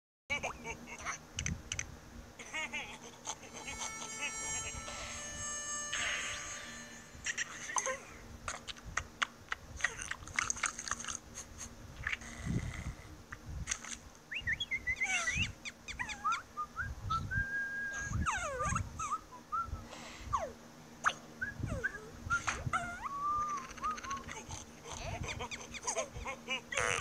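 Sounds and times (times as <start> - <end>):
high squeaky cartoon squeals: 3.3 - 8.1, 15.0 - 16.4, 18.0 - 19.3, 20.0 - 27.0.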